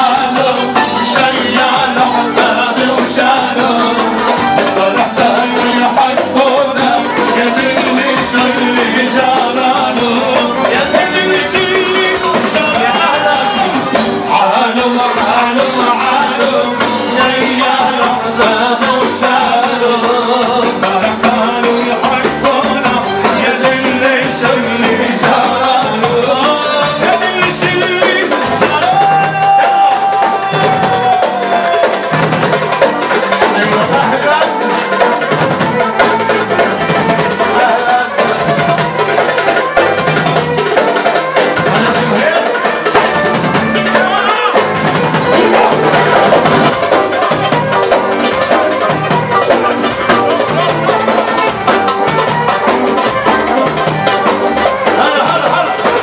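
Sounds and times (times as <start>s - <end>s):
hand drums beat: 0.0s - 56.0s
violin and keyboard melody: 0.0s - 56.0s.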